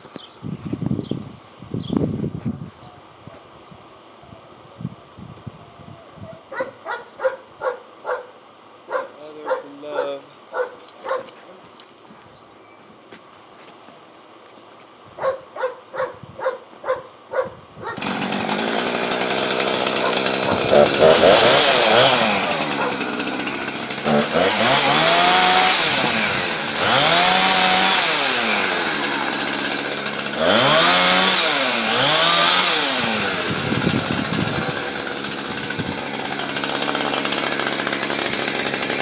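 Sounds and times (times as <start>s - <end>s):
chainsaw idling: 18.0s - 39.0s
chainsaw revving and cutting: 18.0s - 39.0s.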